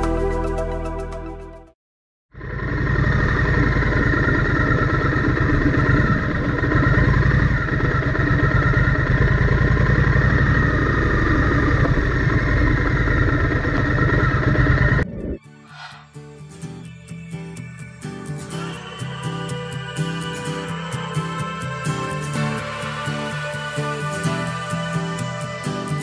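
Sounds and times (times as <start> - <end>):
motorcycle engine running: 2.3 - 15.1.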